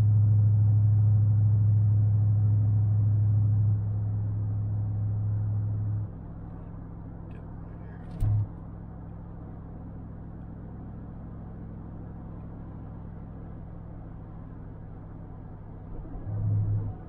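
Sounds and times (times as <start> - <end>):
low rumble: 0.0 - 9.0
car road and engine drone: 0.0 - 17.0.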